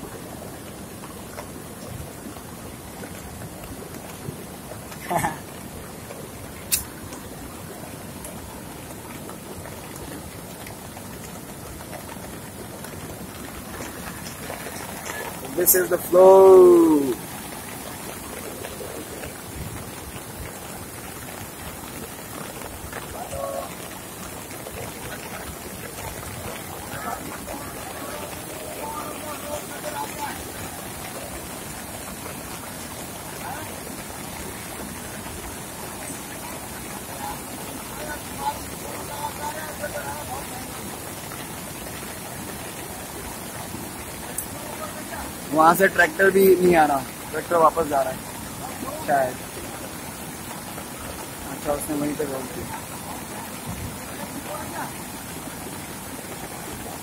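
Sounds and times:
heavy rain: 0.0 - 57.0
rushing floodwater: 0.0 - 57.0
rain drop ticks: 0.4 - 52.5.

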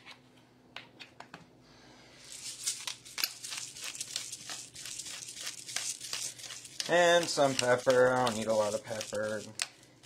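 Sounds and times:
salt shaken from container: 2.2 - 9.6.

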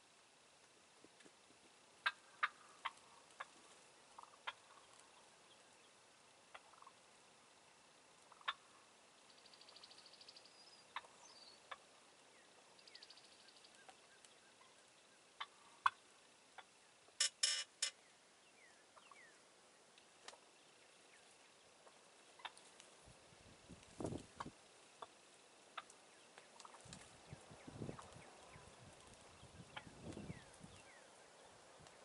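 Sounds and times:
turkey gobbling: 2.0 - 5.6, 6.5 - 7.1, 8.2 - 9.8, 10.9 - 12.0, 12.8 - 16.8, 18.9 - 19.4, 21.8 - 22.7, 24.4 - 27.0, 27.9 - 31.2.

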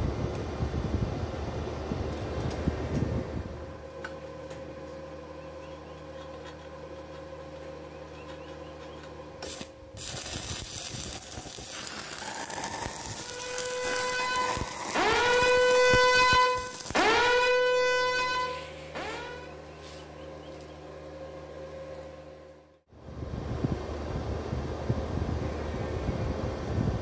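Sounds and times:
steady hum: 0.0 - 27.0
welding arc crackling and hissing: 9.4 - 20.2
loud whistling tone: 12.2 - 18.6.

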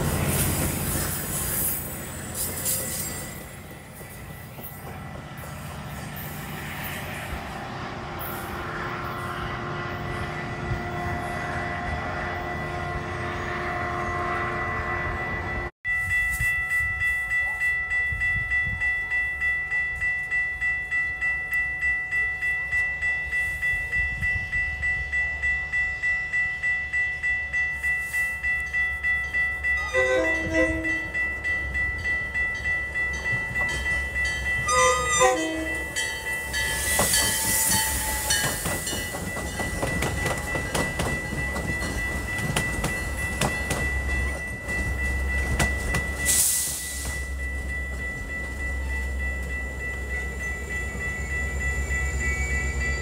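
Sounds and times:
crossing bell ringing: 0.0 - 7.4, 8.2 - 53.0
train wheels rumbling past: 0.0 - 15.7, 23.0 - 53.0
train horn blasts: 8.6 - 15.7, 29.8 - 31.2, 34.6 - 38.6.

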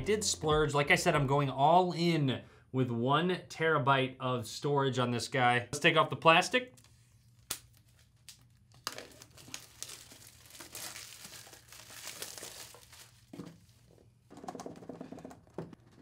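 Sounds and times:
plastic wrap tearing and crinkling: 7.2 - 13.9.

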